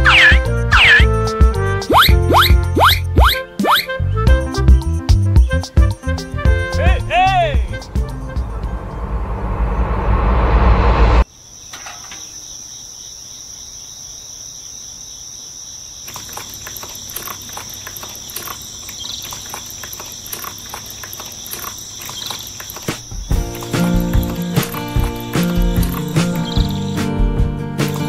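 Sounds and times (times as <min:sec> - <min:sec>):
loud sound cut off: 0:07.8 - 0:11.2
insects trilling: 0:11.2 - 0:27.2.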